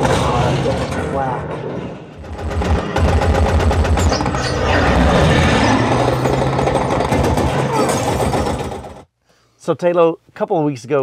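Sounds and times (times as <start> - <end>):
rapid gunfire rattle: 2.2 - 9.1.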